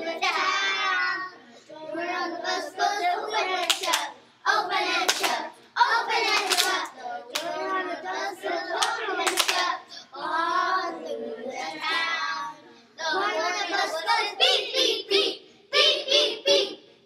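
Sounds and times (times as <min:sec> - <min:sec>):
children singing together: 0:00.0 - 0:16.9
hand claps: 0:03.6 - 0:04.1, 0:05.1 - 0:05.4, 0:06.3 - 0:07.5, 0:08.8 - 0:09.7.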